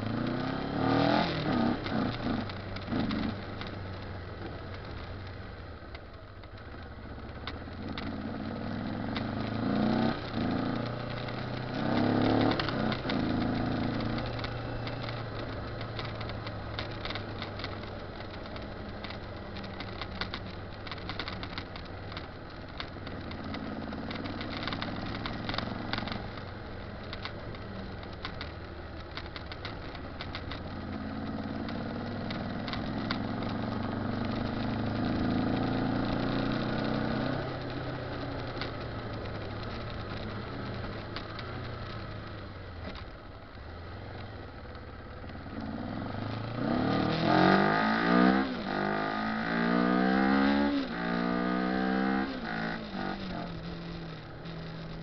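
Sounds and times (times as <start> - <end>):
motorcycle engine revving: 0.0 - 3.7, 7.7 - 22.2, 29.4 - 43.0, 45.1 - 55.0.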